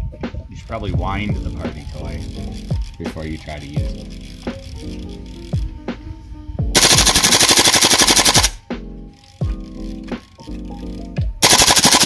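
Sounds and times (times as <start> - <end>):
airsoft gun firing full-auto: 6.8 - 8.6, 11.4 - 12.0.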